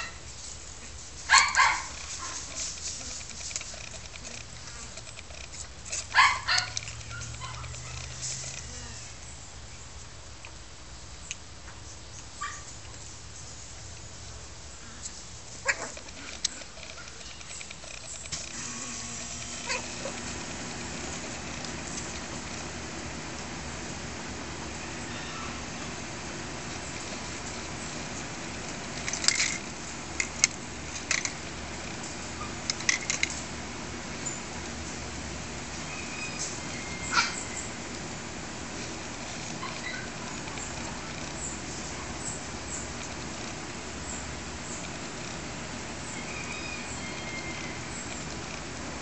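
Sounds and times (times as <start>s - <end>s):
steady background hiss: 0.0s - 49.0s
puppies yipping: 0.8s - 9.2s, 12.4s - 13.0s, 15.0s - 18.4s, 19.4s - 22.7s, 24.9s - 26.0s, 32.2s - 33.0s, 35.8s - 37.9s, 38.8s - 42.9s, 46.0s - 48.4s
clicking rattling bursts: 1.5s - 8.8s, 15.9s - 23.5s, 26.0s - 35.7s
steady low hum: 13.0s - 49.0s.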